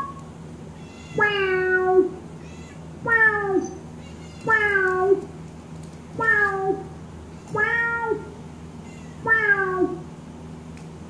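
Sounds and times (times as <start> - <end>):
synthesized cat meows: 0.8 - 5.3, 6.2 - 6.9, 7.5 - 10.1.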